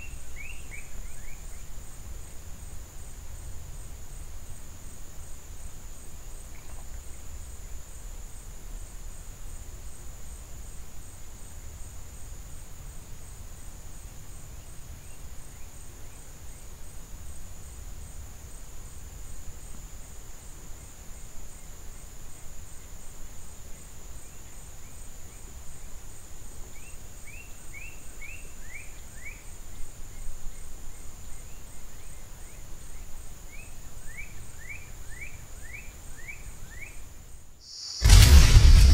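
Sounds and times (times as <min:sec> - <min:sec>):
low rumble: 0:37.8 - 0:38.9.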